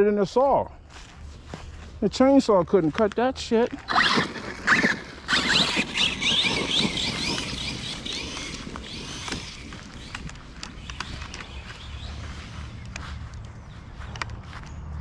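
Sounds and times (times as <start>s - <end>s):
rc car motor whining: 3.9s - 12.6s
sharp clicks: 4.0s - 11.8s.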